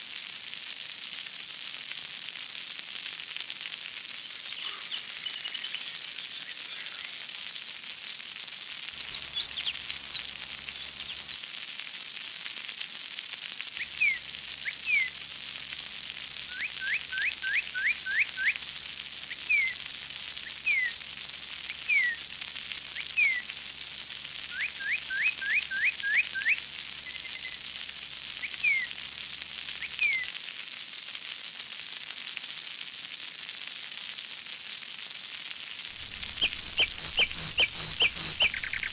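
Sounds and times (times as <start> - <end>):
bird chirping: 4.2 - 7.3, 9.0 - 11.4, 36.0 - 38.9
spraying splashing water: 35.9 - 38.9.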